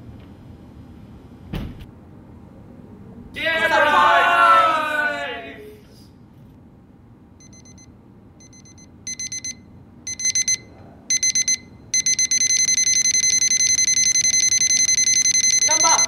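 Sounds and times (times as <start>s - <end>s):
electronic alarm beeping: 7.4s - 16.0s.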